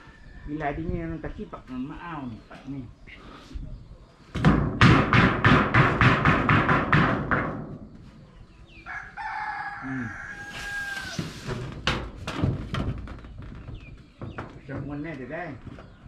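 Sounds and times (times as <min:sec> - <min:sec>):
rooster crowing: 0:08.8 - 0:11.4.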